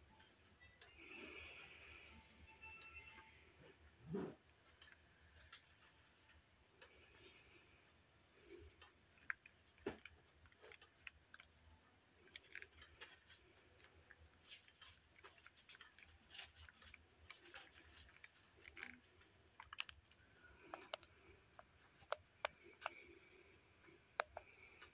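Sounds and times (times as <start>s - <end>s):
faint small clicks and taps: 12.2s - 24.9s.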